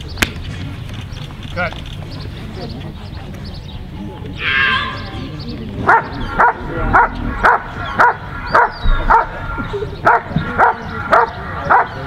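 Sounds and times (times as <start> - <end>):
dog barking: 5.8 - 12.0.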